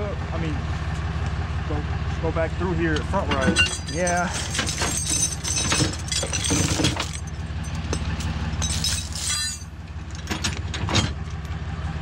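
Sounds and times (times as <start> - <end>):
truck engine idling: 0.0 - 12.0
metal tow gear clanking: 2.9 - 11.2.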